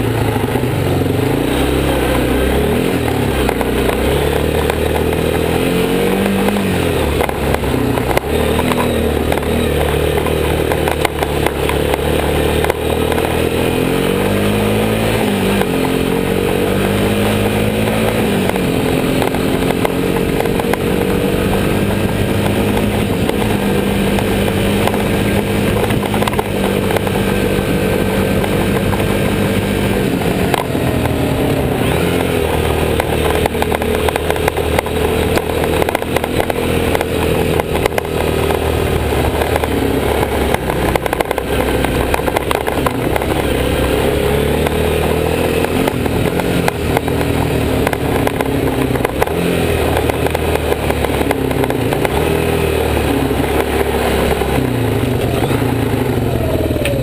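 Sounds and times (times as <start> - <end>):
atv engine running hard: 0.0 - 57.0
rattles over rough ground: 0.0 - 57.0.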